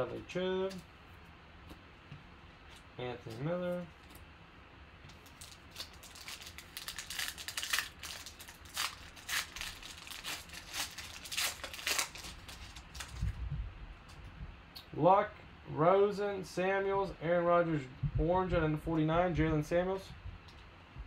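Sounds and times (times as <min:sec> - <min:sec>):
foil wrapper tearing and crinkling: 0:05.1 - 0:13.4.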